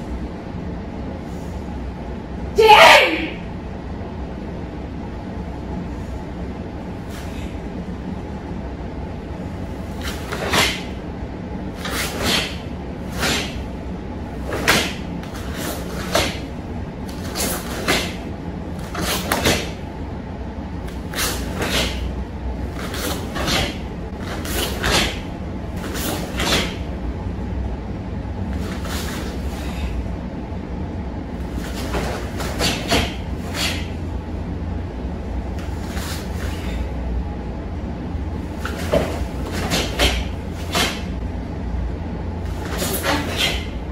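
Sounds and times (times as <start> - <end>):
steady low hum: 0.0 - 43.9
uniform snapping and swishing: 9.9 - 11.0, 11.8 - 13.8, 14.4 - 19.8, 20.9 - 22.1, 22.7 - 26.9, 28.5 - 29.9, 31.4 - 34.0, 35.6 - 36.8, 38.5 - 41.2, 42.5 - 43.8.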